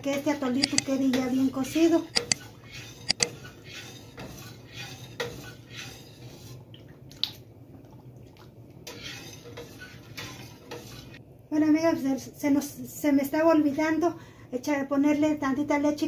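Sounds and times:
liquid swishing in a pot: 0:00.0 - 0:11.3.

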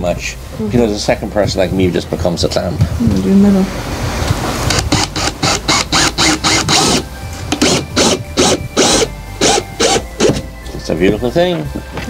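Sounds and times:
cordless drill driving a screw: 0:04.7 - 0:10.4.

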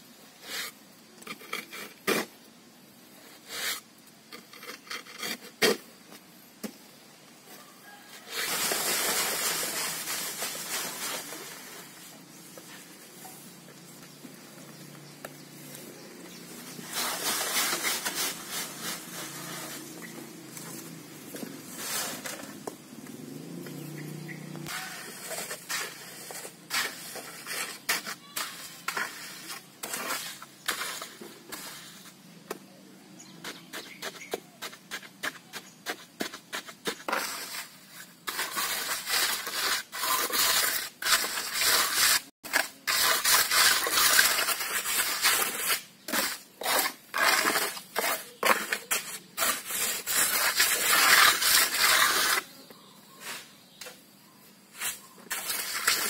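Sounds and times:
trowel scraping wet cement: 0:00.4 - 0:02.4, 0:03.2 - 0:05.9, 0:16.4 - 0:22.7, 0:24.6 - 0:32.6, 0:33.3 - 0:53.6, 0:54.7 - 0:56.0.

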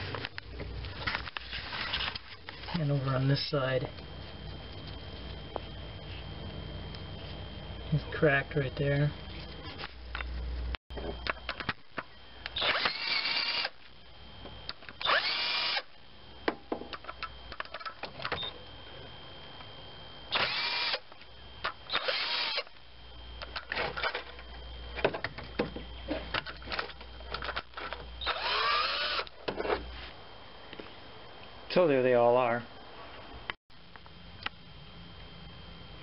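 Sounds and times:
power tool spinning nuts: 0:12.5 - 0:13.8, 0:15.0 - 0:15.9, 0:20.3 - 0:22.8, 0:27.4 - 0:29.4.

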